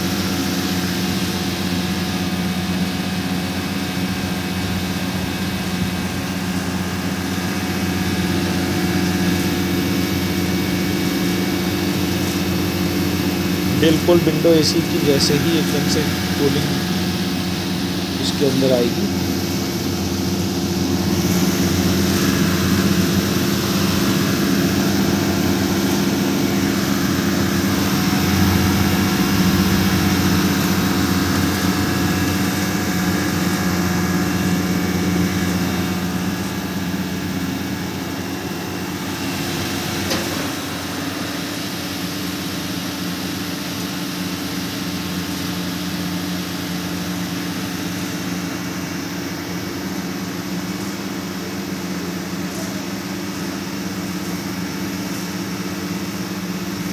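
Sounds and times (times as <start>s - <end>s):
compressor and fan humming: 0.0s - 56.9s.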